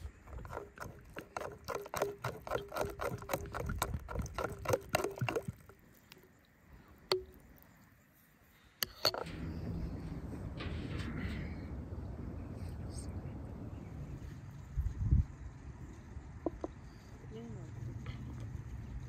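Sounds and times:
water pouring: 0.2 - 6.2.

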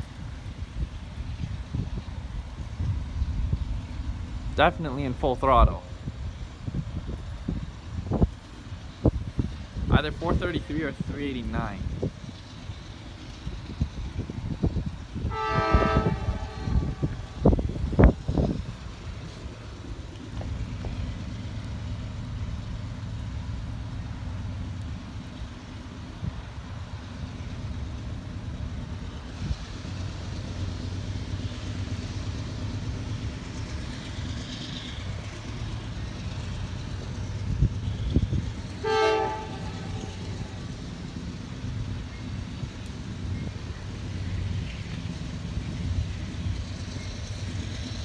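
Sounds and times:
distant diesel locomotives rumbling: 0.0 - 48.0
locomotive air horn toot: 15.2 - 17.4, 38.8 - 40.5.

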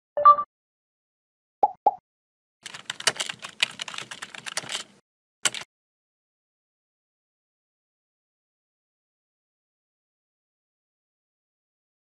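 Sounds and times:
computer keyboard typing: 2.6 - 5.7.

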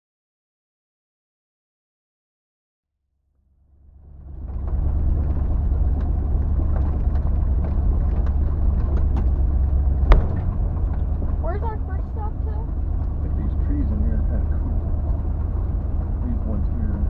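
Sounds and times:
engine and road rumble: 3.4 - 17.0
small rattles and clicks: 4.3 - 17.0
sharp knock: 10.0 - 10.6.

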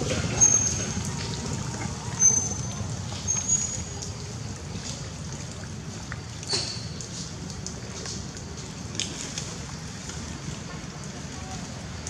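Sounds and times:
low forest rumble: 0.0 - 6.1.

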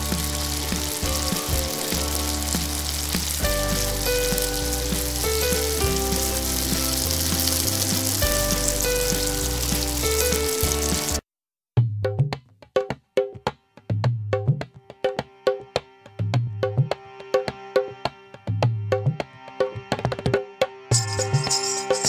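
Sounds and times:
background music with bass line: 0.0 - 11.2, 13.5 - 22.0
deep-frying sizzle in oil: 0.0 - 11.2.

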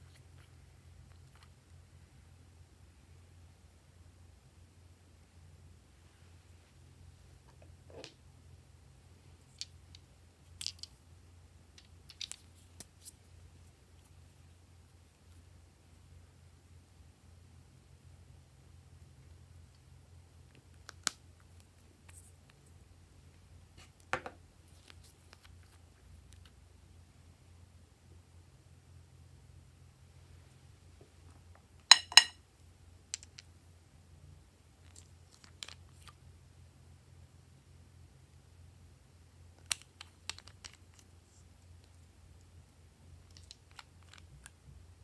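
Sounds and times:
low steady hum: 0.0 - 45.0
glass bottle click: 31.9 - 32.3.

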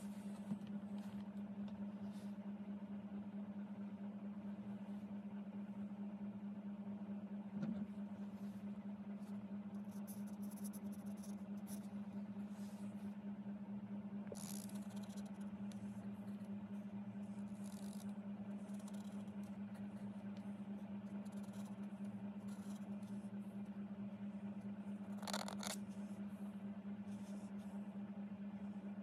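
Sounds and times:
steady low hum: 0.0 - 29.0
pen scraping across card: 9.8 - 11.8, 14.3 - 15.4, 17.4 - 20.0, 22.4 - 23.2, 25.1 - 25.8.

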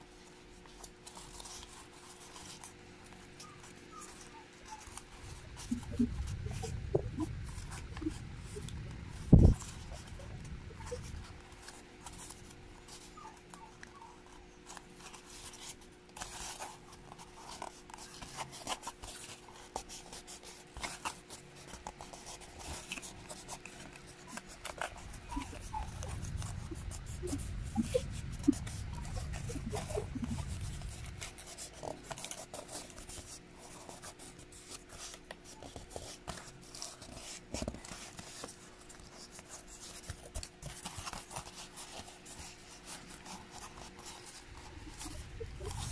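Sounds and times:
faint steady hum: 0.0 - 45.9
scratching and scraping strokes: 0.2 - 45.9
low rumble: 5.4 - 11.6, 24.8 - 31.5, 44.6 - 45.9.

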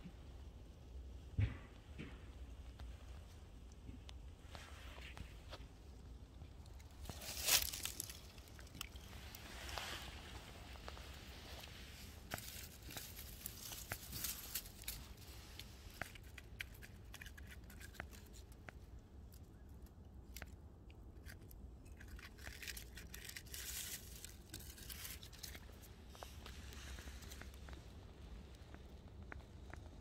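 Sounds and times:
dry leaves crackling: 6.6 - 18.4, 22.1 - 27.6.

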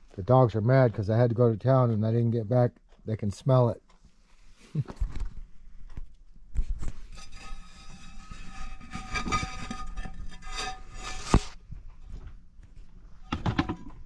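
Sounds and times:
clay lid scraping and squealing: 7.1 - 11.6.

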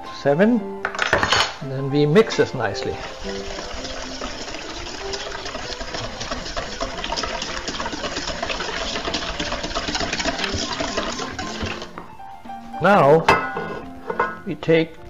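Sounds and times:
whisk clicking against metal bowl: 5.0 - 11.9.

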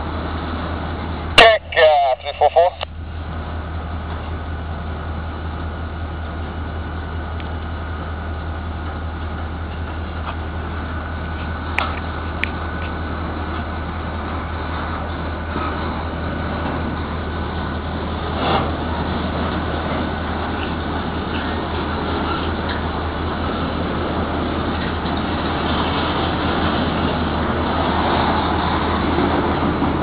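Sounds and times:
machinery rumble and hiss: 0.0 - 30.0.

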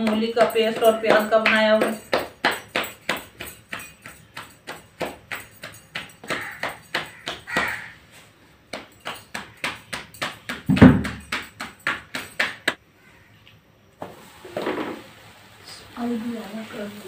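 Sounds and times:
hands slapping dough: 0.0 - 8.0, 8.7 - 12.8
deep thud: 10.7 - 11.2.

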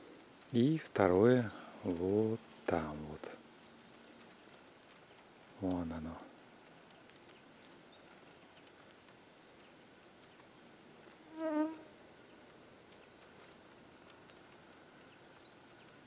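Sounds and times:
faint bird twittering: 0.0 - 16.0
wasp buzzing past: 11.2 - 11.9.

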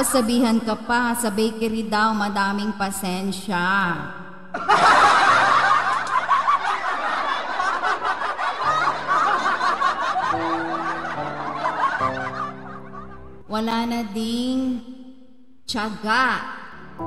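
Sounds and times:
soft background music: 0.0 - 17.0
crowd laughing: 4.5 - 13.4.

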